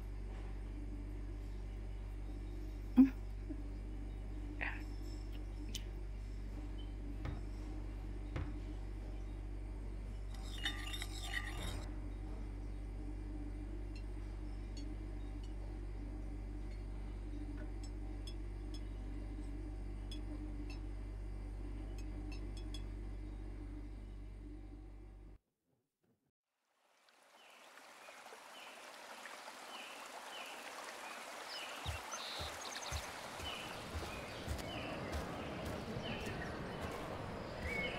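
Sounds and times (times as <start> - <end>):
steady low hum: 0.0 - 25.4, 32.0 - 37.9
soft low thuds: 7.1 - 9.0
running water rush: 26.8 - 37.9.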